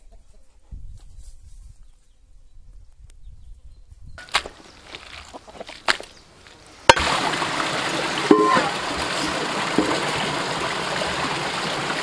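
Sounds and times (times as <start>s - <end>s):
water flowing over rocks: 6.9s - 12.0s.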